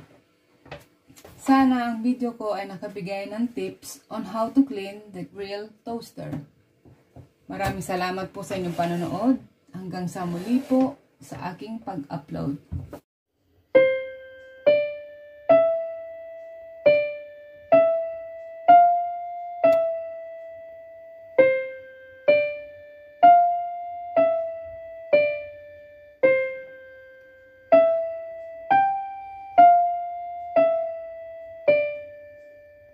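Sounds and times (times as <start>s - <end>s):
slow piano melody: 13.4s - 32.9s.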